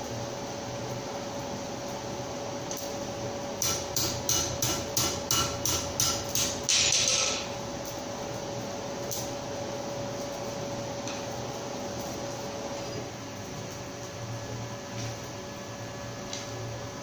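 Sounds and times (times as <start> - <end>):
forge blower hum: 0.0 - 17.0
hammer striking iron on anvil: 3.6 - 7.5.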